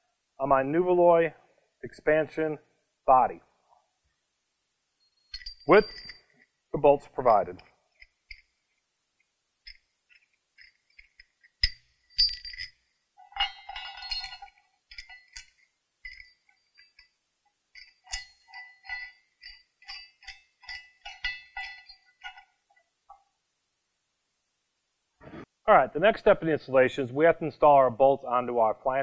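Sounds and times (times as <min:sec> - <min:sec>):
wrench clinking on metal pipe clamp: 0:05.1 - 0:06.5, 0:07.1 - 0:08.6, 0:09.6 - 0:23.2.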